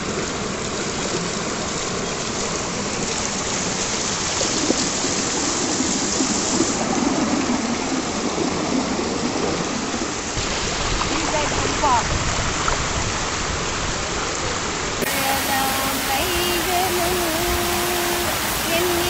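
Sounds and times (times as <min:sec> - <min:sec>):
water rushing over dam: 0:09.8 - 0:19.0.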